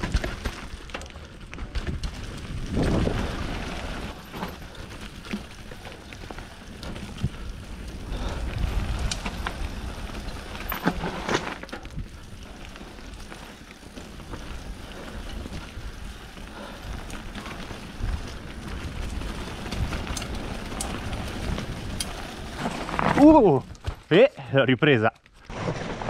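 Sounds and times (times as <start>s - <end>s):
bike knocks and rattles: 0.0s - 24.2s
bike tyres rumbling over trail: 0.0s - 26.0s.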